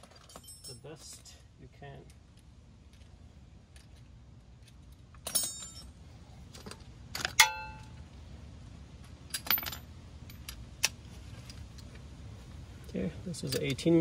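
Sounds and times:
metal hand tools clinking: 0:00.0 - 0:01.3.

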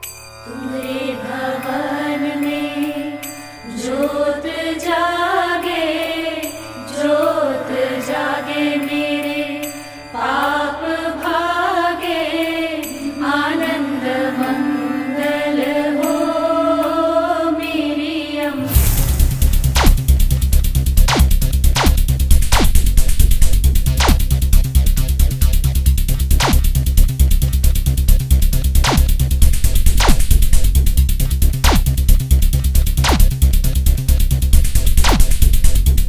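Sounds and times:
person singing a devotional mantra: 0:00.5 - 0:18.7.

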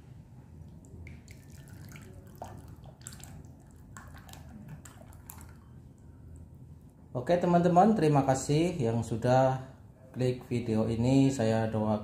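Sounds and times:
sauce dripping and plopping: 0:00.6 - 0:07.0.

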